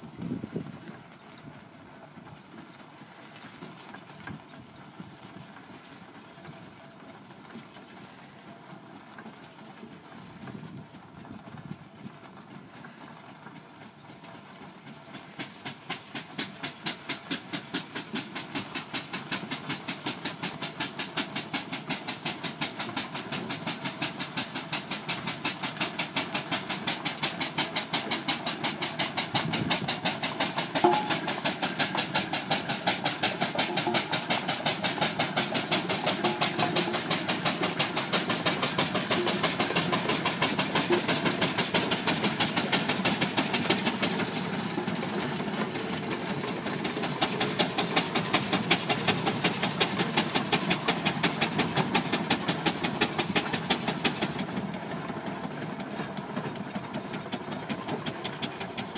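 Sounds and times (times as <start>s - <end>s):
steam engine exhaust chuffing: 0.0s - 58.9s
sharp knock: 30.8s - 31.4s.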